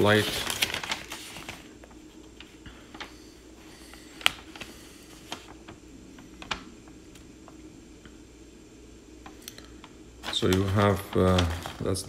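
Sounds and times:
paper clicks and rustles: 0.0s - 3.2s, 4.1s - 5.8s, 6.4s - 7.2s, 9.8s - 12.0s.

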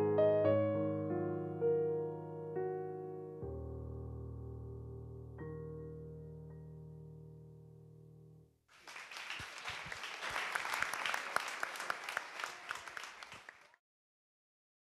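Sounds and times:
piano chord: 0.0s - 8.4s
audience applause: 8.7s - 13.8s.

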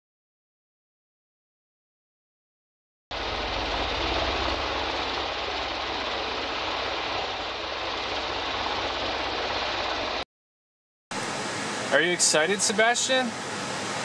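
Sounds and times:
propeller plane engine droning: 3.1s - 10.2s, 11.1s - 14.0s
steady hiss: 11.2s - 14.0s.

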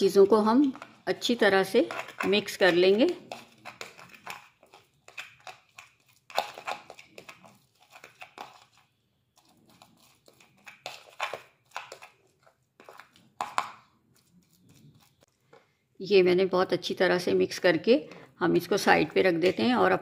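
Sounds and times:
fork scraping and mashing in bowl: 0.0s - 15.3s.

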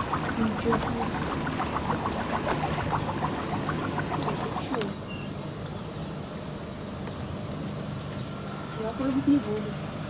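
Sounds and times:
water splashing along hull: 0.0s - 5.3s
boat engine humming: 0.0s - 6.8s.

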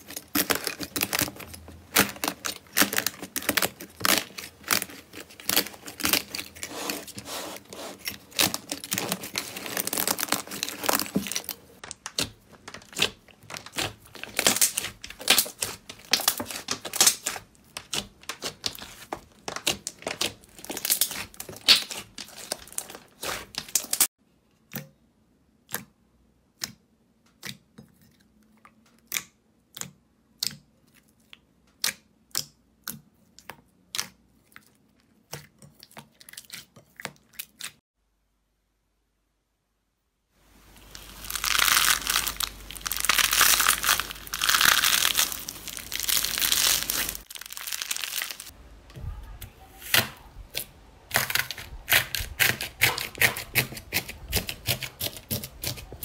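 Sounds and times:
crunchy slime crackling: 0.0s - 24.1s, 40.6s - 48.6s, 49.9s - 56.0s.

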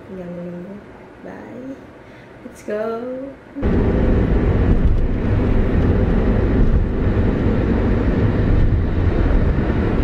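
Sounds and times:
car tyre and engine rumble: 3.6s - 10.0s.

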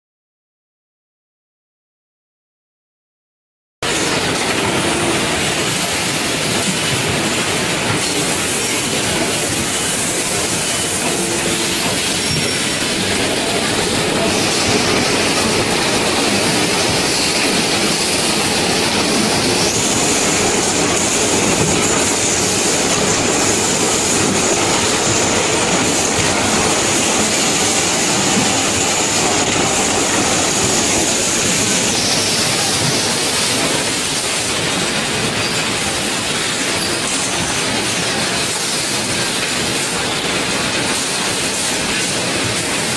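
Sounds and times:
factory machinery din: 3.8s - 42.9s.

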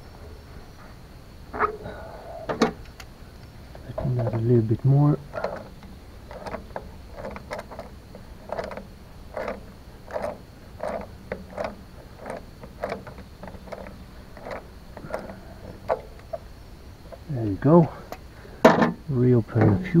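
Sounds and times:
wrench clicking: 5.3s - 16.4s.

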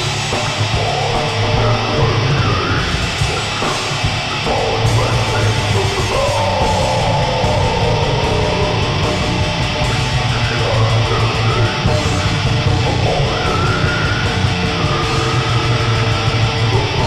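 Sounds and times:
death metal music: 0.0s - 17.0s
distorted electric guitars: 0.0s - 17.0s.

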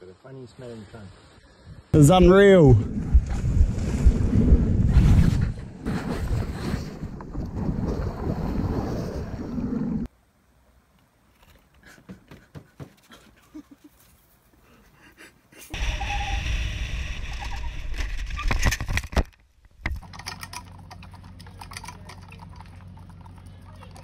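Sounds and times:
wind noise on microphone: 2.7s - 10.1s.

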